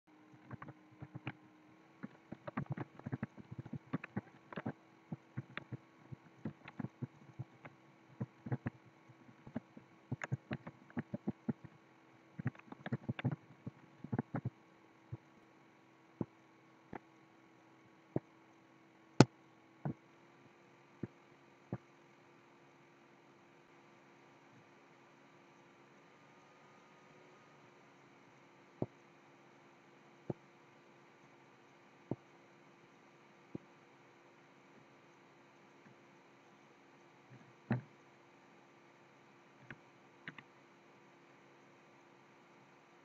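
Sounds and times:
faint steady hum: 0:00.1 - 0:43.0
keyboard typing: 0:00.4 - 0:01.4, 0:02.0 - 0:11.7, 0:12.4 - 0:15.2, 0:39.6 - 0:40.4
mouse clicks: 0:00.4 - 0:01.4, 0:02.0 - 0:11.7, 0:12.4 - 0:14.5, 0:39.6 - 0:40.5.

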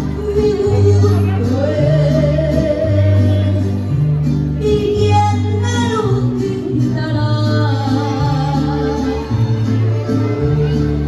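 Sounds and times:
woman singing: 0:00.0 - 0:03.8, 0:04.6 - 0:09.4
bass holding long notes: 0:00.0 - 0:11.0
guitars: 0:00.0 - 0:11.0.

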